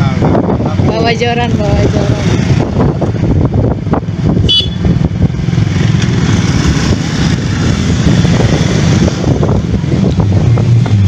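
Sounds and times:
wind rushing over microphone: 0.0 - 11.0
motorcycle engine running: 0.6 - 11.0.

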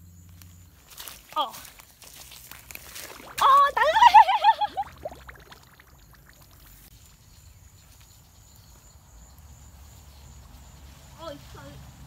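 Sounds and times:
soft steps in wet mud: 0.4 - 4.1.

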